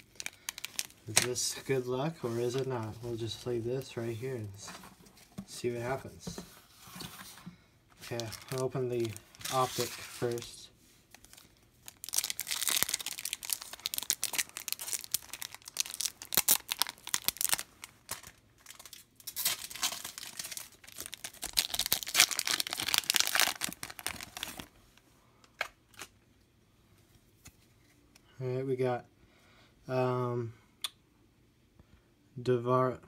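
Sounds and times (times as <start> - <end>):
foil wrapper tearing and crinkling: 0.0 - 1.0, 11.1 - 24.7.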